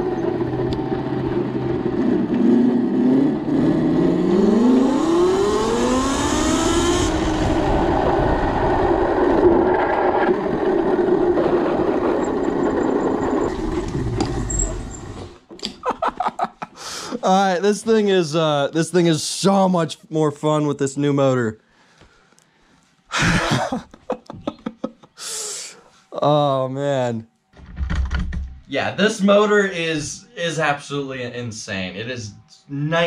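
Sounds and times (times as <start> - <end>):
wind rush: 6.4 - 14.4
tyre noise: 7.2 - 16.3
man laughing: 15.7 - 17.5, 23.1 - 26.5.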